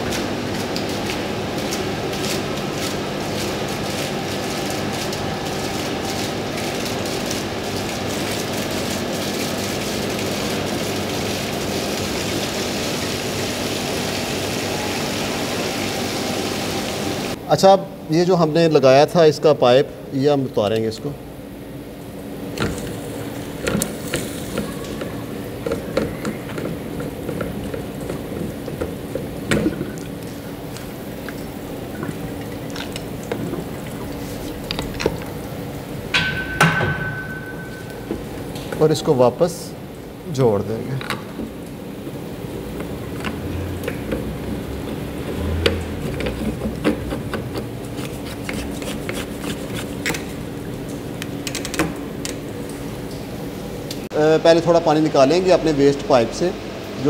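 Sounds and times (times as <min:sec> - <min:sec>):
machine hum and rush: 0:00.0 - 0:17.4
pump humming: 0:00.0 - 0:17.4, 0:21.3 - 0:40.3.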